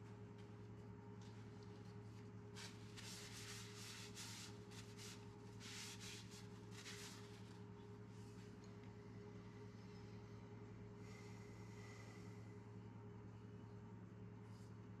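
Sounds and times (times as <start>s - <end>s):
steady low hum: 0.0s - 15.0s
cloth rubbing on wood: 2.6s - 7.6s.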